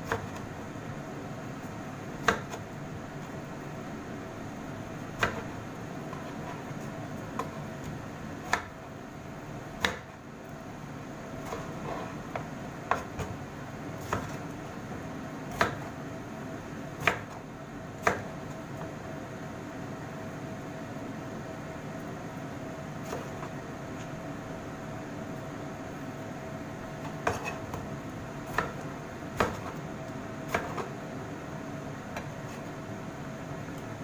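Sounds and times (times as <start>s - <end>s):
faint steady hum: 0.0s - 34.0s
knife slicing tomatoes: 14.0s - 14.6s, 27.0s - 29.8s, 30.4s - 31.0s.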